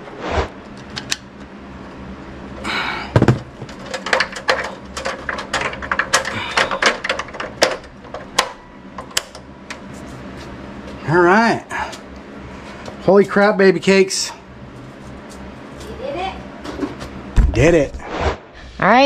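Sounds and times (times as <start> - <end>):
thump: 17.4 - 17.6.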